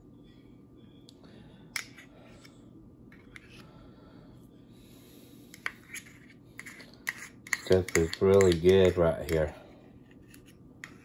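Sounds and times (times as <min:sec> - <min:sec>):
low steady hum: 0:00.0 - 0:11.0
sharp clicks and taps: 0:07.5 - 0:09.5.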